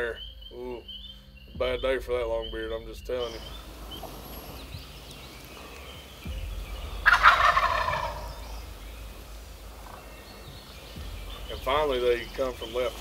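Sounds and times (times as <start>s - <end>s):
turkey gobbling: 3.3s - 13.0s.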